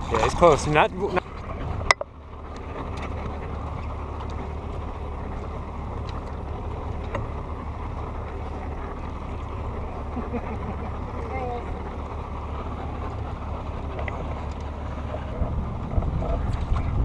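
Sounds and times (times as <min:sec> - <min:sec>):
water lapping against boat hull: 0:00.0 - 0:17.0
wind noise on microphone: 0:15.2 - 0:17.0.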